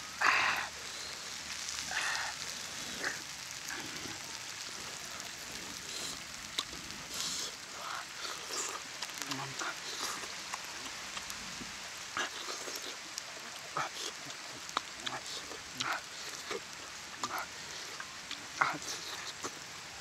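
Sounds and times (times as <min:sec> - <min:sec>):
steady background hiss: 0:00.0 - 0:20.0
man chewing and lip-smacking: 0:04.9 - 0:19.7.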